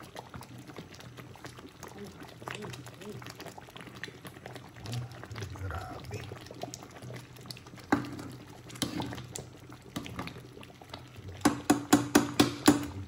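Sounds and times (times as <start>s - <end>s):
porridge bubbling: 0.0s - 13.0s
ladle stirring: 6.2s - 13.0s.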